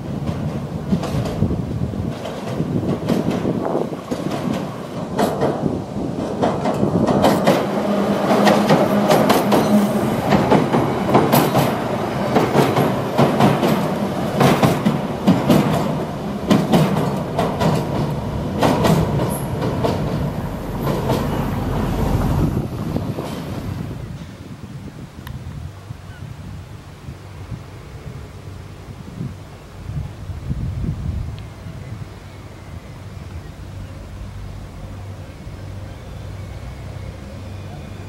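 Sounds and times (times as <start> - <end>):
train wheels clicking over rail joints: 0.0 - 24.4
electric train passing: 0.0 - 24.5, 27.3 - 38.0.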